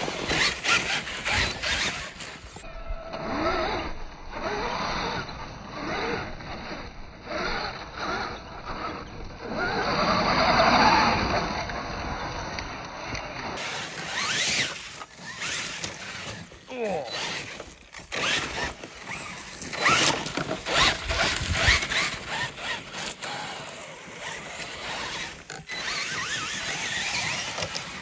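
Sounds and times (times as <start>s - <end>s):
tires churning loose dirt: 0.0s - 2.6s, 4.4s - 28.0s
electric rc truck motor revving: 0.0s - 28.0s.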